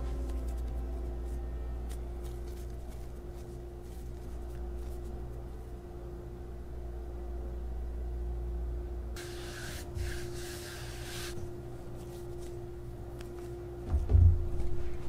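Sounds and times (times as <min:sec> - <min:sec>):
faint steady hum: 0:00.0 - 0:15.0
hiss: 0:09.2 - 0:11.4.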